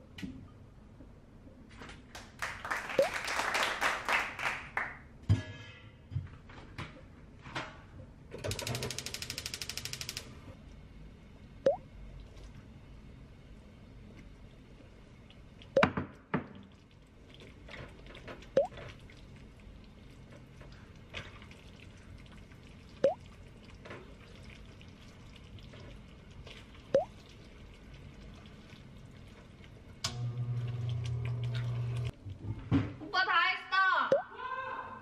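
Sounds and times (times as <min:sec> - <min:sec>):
low steady hum: 0:10.3 - 0:15.8
sauce bubbling in a frying pan: 0:16.6 - 0:30.0
wet plops: 0:26.9 - 0:27.2.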